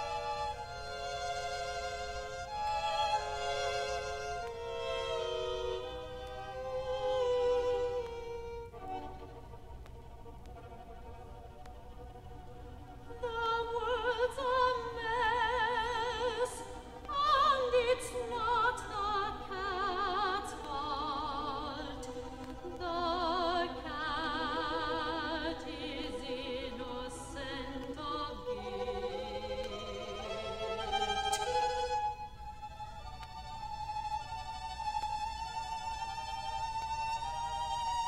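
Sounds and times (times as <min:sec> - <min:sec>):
string ensemble: 0:00.0 - 0:38.0
soprano singing with vibrato: 0:13.1 - 0:31.8.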